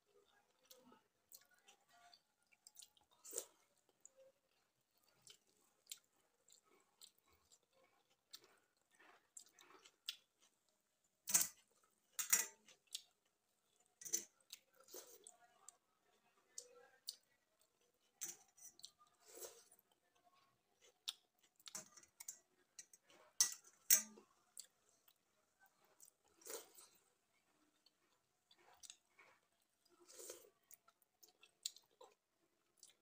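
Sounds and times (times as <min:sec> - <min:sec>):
chewing and lip smacks: 0:27.7 - 0:33.0.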